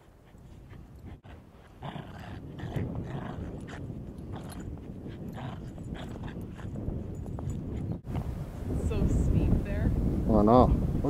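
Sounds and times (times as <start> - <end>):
dogs play-growling: 0.2 - 7.9.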